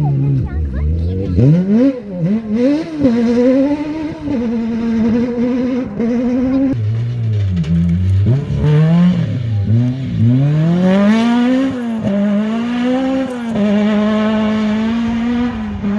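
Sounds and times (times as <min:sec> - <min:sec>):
gear changes: 0:00.0 - 0:15.9
rally car engine revving: 0:00.0 - 0:15.9.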